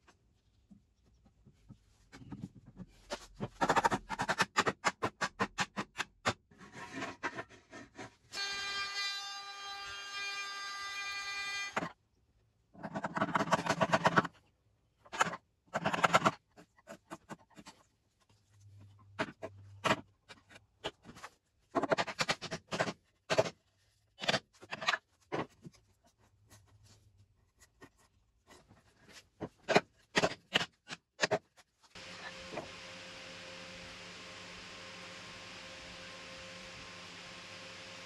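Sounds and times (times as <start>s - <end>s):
router whining: 31.9s - 38.0s.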